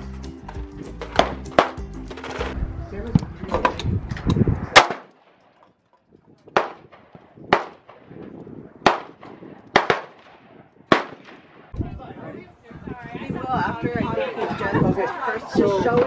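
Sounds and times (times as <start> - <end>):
gunshots with echo: 4.7 - 5.4, 6.5 - 11.8.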